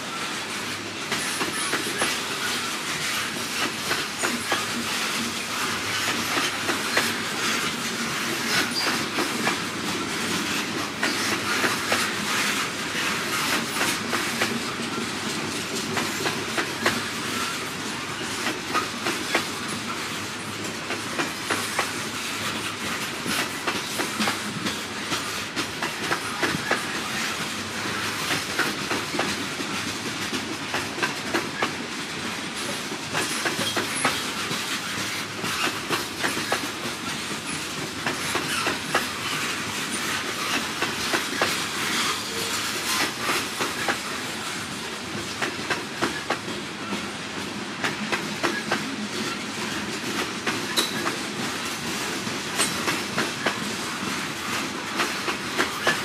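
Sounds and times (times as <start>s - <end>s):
train rumble: 0.0s - 56.0s
train wheels clacking on rail joints: 0.1s - 56.0s.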